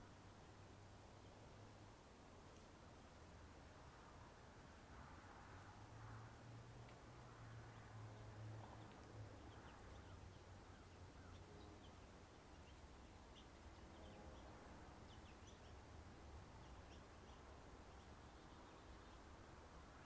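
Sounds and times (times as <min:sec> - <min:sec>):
faint bird chirps: 0:16.5 - 0:19.4.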